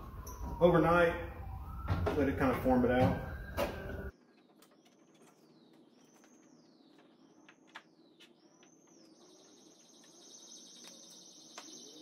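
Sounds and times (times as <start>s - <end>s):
faint high bird chirps: 3.3s - 12.0s.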